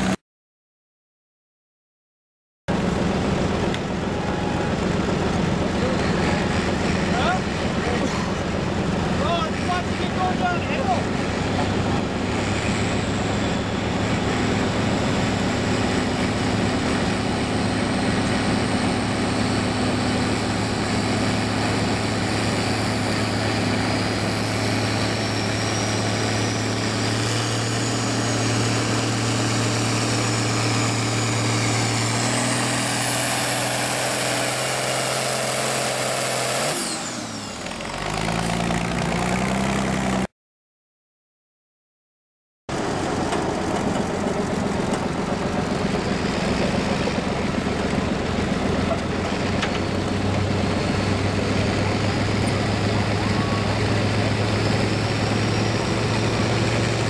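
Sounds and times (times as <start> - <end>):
tractor engine pulling under load: 42.7 - 57.0.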